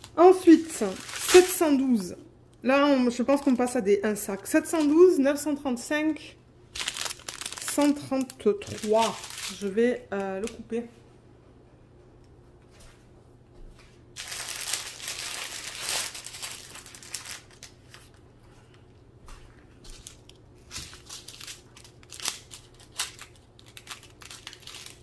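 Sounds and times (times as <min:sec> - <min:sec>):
plastic bags crinkling: 0:00.0 - 0:02.1, 0:06.7 - 0:10.3, 0:14.2 - 0:18.2, 0:19.9 - 0:25.0.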